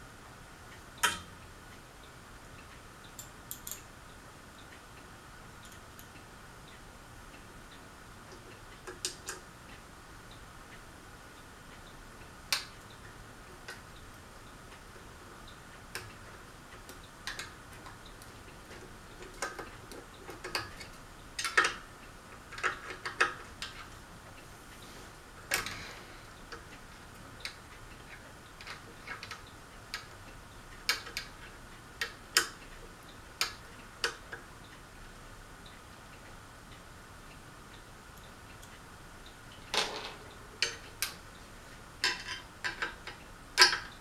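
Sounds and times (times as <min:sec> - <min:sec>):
small metal parts clicking and clinking: 0:03.2 - 0:03.9, 0:05.6 - 0:06.1, 0:42.0 - 0:44.0.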